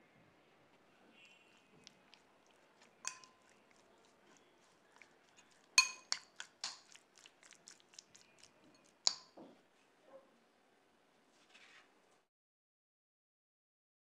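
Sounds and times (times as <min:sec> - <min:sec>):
spoon clinking in ceramic bowl: 0:01.5 - 0:03.8, 0:04.6 - 0:09.4.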